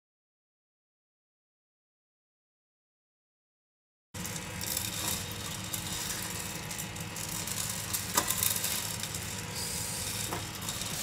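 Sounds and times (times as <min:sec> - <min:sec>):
coffee beans rattling in drum: 0:04.2 - 0:11.0
motor and fan hum: 0:04.2 - 0:11.0.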